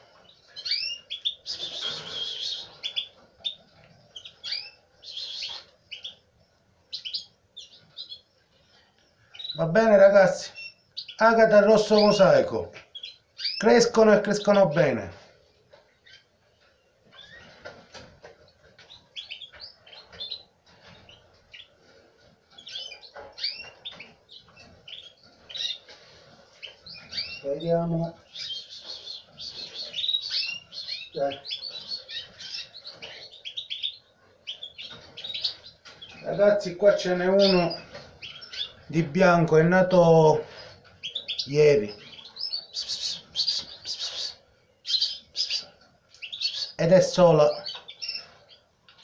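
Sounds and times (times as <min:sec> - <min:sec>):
canaries chirping: 0:00.0 - 0:49.0
nestlings cheeping: 0:00.6 - 0:03.6, 0:26.6 - 0:48.6.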